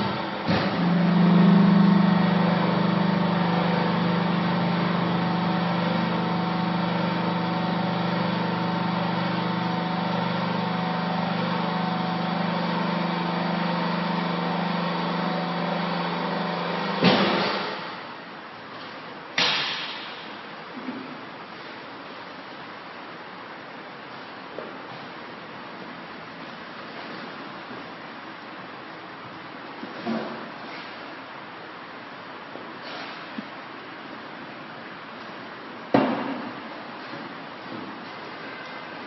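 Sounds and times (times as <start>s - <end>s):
hydraulic motor and pump humming: 0.0s - 21.8s
sharp clunk: 17.0s - 17.7s, 19.4s - 20.2s.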